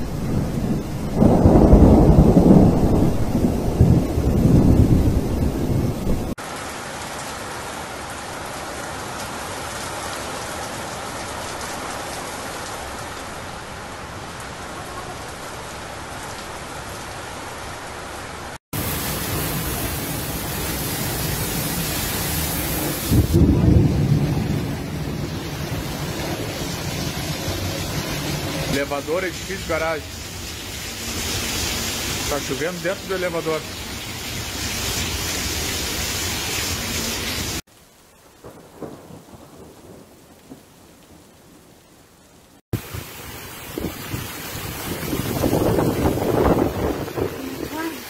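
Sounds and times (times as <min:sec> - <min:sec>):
thunder rumbling: 0:00.0 - 0:06.4, 0:18.8 - 0:35.6, 0:38.4 - 0:41.9, 0:42.8 - 0:48.0
heavy rain pouring: 0:00.0 - 0:48.0.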